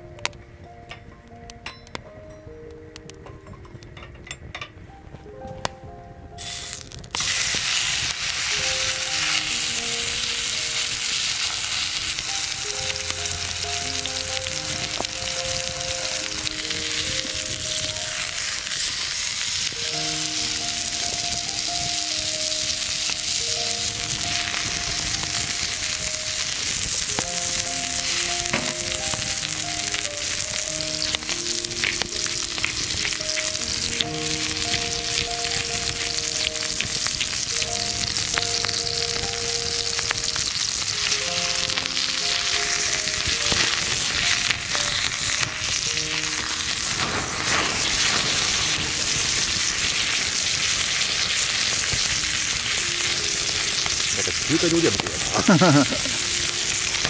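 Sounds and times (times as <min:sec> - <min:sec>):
soft background melody: 0:00.0 - 0:57.0
meat sizzling in a pan: 0:06.4 - 0:57.0.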